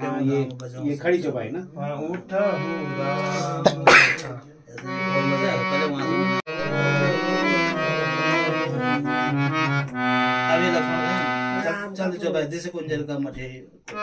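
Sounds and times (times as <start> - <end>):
harmonium playing chords: 2.3 - 4.2, 4.8 - 11.7.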